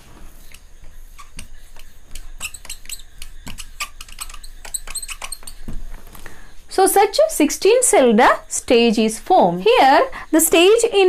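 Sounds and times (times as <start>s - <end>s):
marker squeaking on whiteboard: 0.3s - 6.1s.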